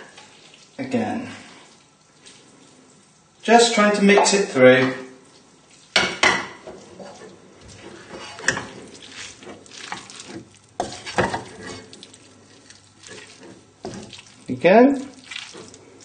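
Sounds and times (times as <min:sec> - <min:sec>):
wooden spoon stirring in a frying pan: 0:05.0 - 0:16.0.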